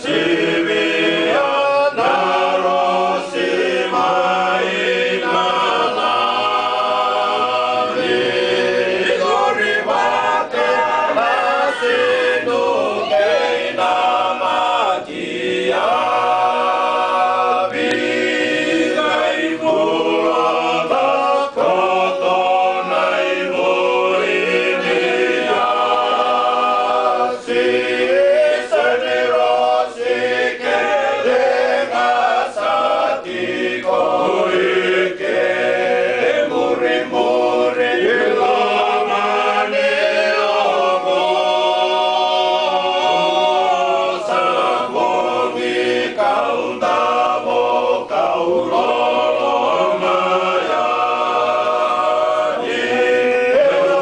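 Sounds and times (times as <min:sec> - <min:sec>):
men singing unaccompanied: 0:00.0 - 0:54.0.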